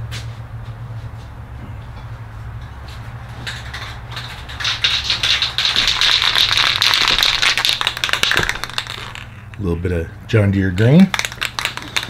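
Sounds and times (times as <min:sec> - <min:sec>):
spray can ball rattling: 0:03.4 - 0:09.7, 0:10.8 - 0:12.0.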